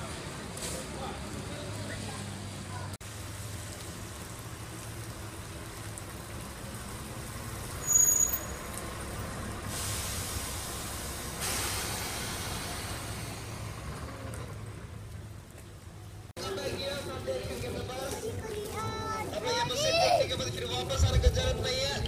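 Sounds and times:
vehicle humming: 0.0 - 16.9
hiss: 9.6 - 13.9.

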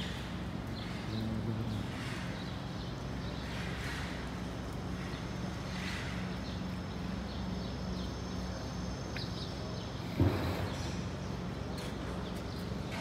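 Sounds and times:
single thump: 10.2 - 10.7.

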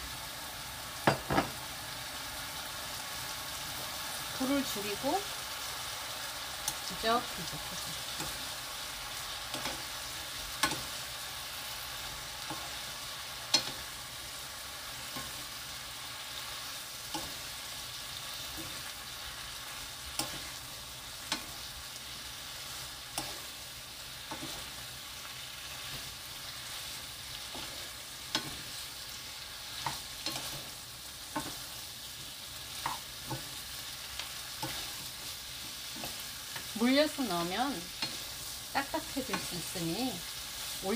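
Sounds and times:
food sizzling in a pan: 0.0 - 40.9
wooden spatulas tapping a pan: 10.6 - 10.9, 27.5 - 28.7, 31.3 - 31.7, 32.8 - 33.6.

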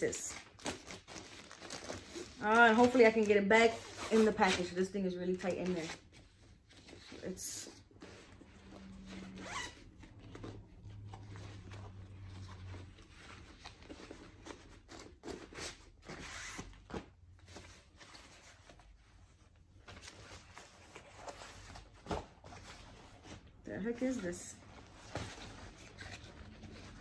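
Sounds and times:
nylon poncho rustling: 0.0 - 15.3.

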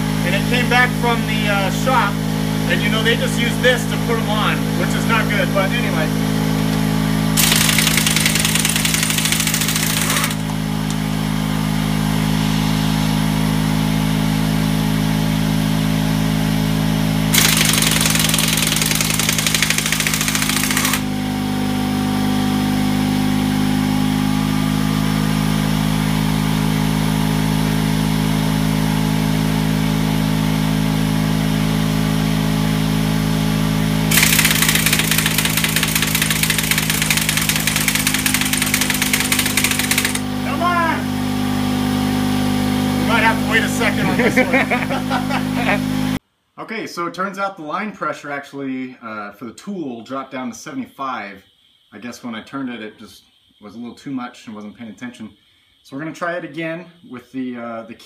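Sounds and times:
air compressor motor running: 0.0 - 46.2
air impact wrench hammering: 6.6 - 11.1, 17.3 - 21.2, 34.1 - 40.6.

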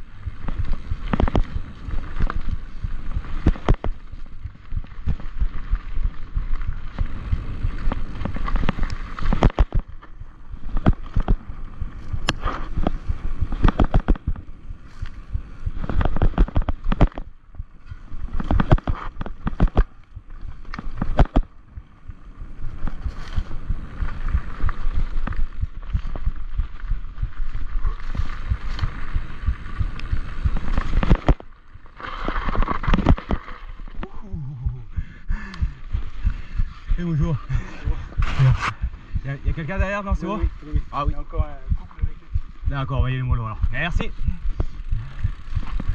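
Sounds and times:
wheels knocking on stones: 0.0 - 14.5, 15.2 - 21.6, 22.7 - 34.0
mountain bike rumbling downhill: 0.0 - 45.9.

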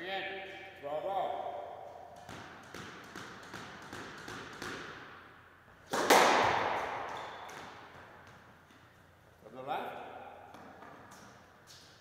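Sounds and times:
loud ringing smack in squash court: 5.9 - 7.8.

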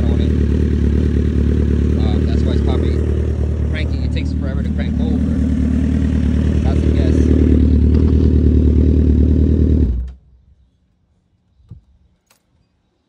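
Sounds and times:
motorcycle engine running: 0.0 - 10.2.

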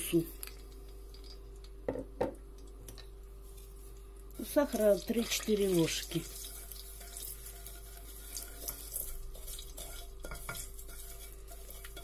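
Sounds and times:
faint oil sizzle: 0.0 - 1.8, 2.9 - 12.0
wooden spatula scraping a pot: 5.6 - 12.0.

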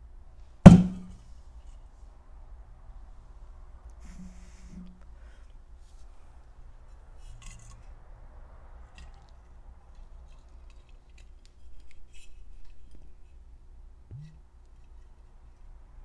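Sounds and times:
glass bottle handled: 14.1 - 14.4.

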